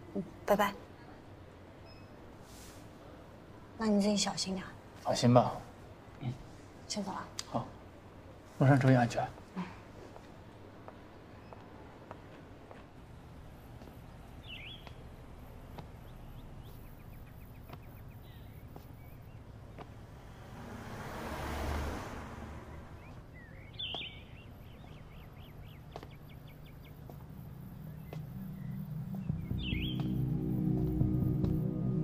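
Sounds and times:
car driving past: 0:19.8 - 0:23.2.

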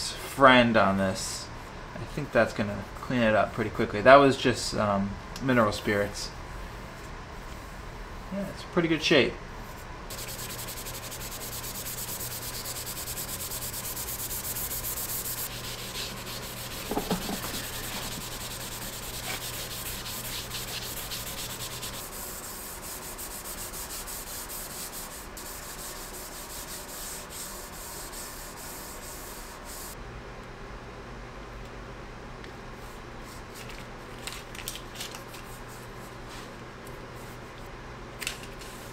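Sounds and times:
scrubbing pad rubbing metal: 0:10.1 - 0:29.9.

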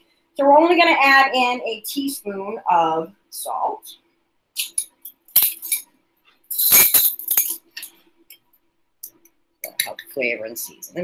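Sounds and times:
metal spoons clinking against glass: 0:06.5 - 0:07.6.

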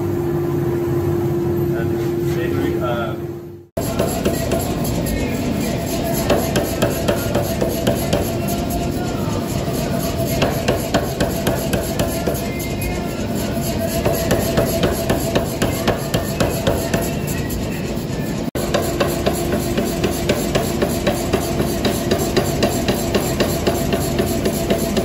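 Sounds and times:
steady machine hum: 0:00.0 - 0:25.0
power hammer striking steel: 0:03.8 - 0:05.2, 0:06.0 - 0:08.8, 0:10.1 - 0:12.7, 0:13.8 - 0:17.2, 0:18.6 - 0:25.0.

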